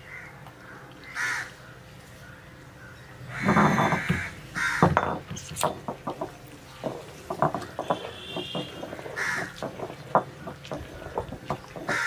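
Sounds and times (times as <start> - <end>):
crows cawing: 1.0 - 1.5, 2.2 - 5.0, 8.2 - 9.9, 11.8 - 12.0
stone pestle knocking on stone: 3.4 - 12.0.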